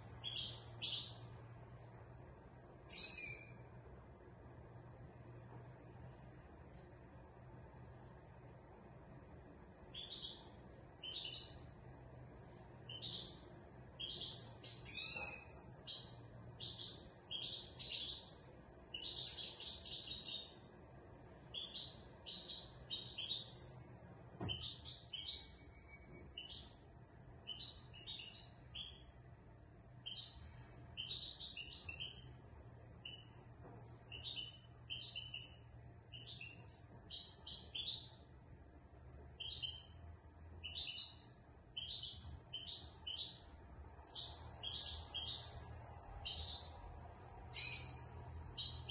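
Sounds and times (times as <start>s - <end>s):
goldfinch singing: 0.2s - 1.2s, 2.9s - 3.6s, 9.9s - 11.7s, 12.9s - 18.4s, 19.0s - 20.6s, 21.5s - 23.8s, 27.4s - 29.1s, 30.0s - 32.3s, 34.1s - 38.2s, 39.4s - 40.0s, 40.6s - 45.5s, 46.2s - 46.9s, 47.5s - 48.9s.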